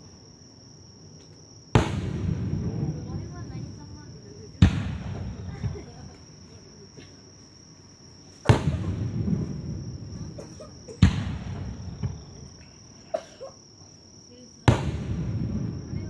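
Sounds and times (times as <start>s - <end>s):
high insect trill: 0.0s - 16.0s
fireworks bangs with crackle: 1.7s - 6.4s, 8.3s - 12.8s, 14.6s - 16.0s.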